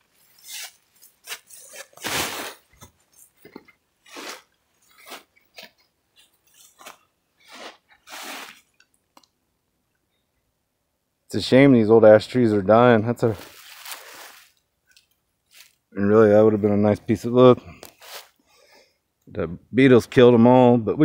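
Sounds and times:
footsteps crunching dry leaves: 13.2 - 14.6, 15.5 - 15.8.

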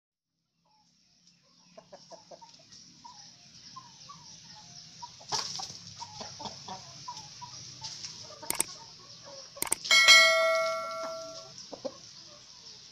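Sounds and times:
chickens clucking: 0.6 - 12.9.

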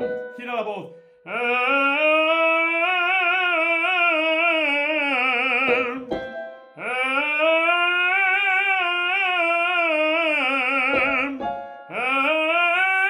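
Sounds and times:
person breathing: 0.9 - 1.3, 11.5 - 12.0
male tenor singing warm-up: 1.3 - 6.1, 6.8 - 13.0.

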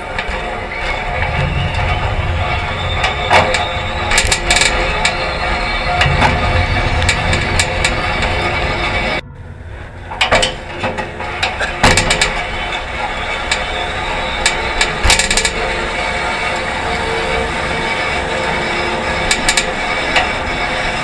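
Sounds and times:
bicycle rattling and clanking: 0.0 - 9.2, 9.9 - 21.0
sharp metal knocks: 1.2 - 12.9.

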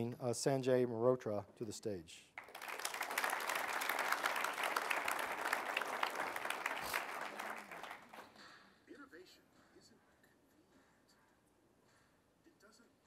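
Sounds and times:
audience applauding: 2.4 - 8.4.

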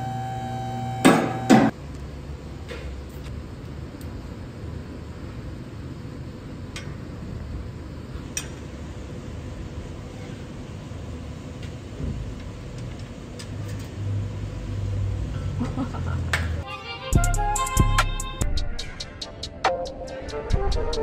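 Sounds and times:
shop background rumble: 0.0 - 16.6.

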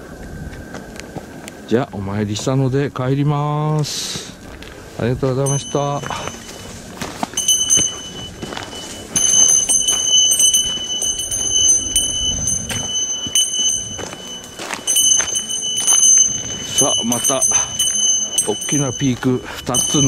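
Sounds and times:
footsteps on trail: 0.1 - 1.6, 3.7 - 20.0
bear bell jingling: 5.3 - 20.0.

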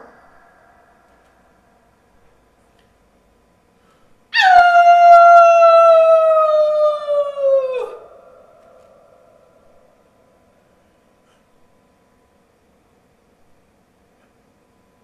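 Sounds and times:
person imitating a wolf howl: 0.0 - 0.8, 4.4 - 9.2.

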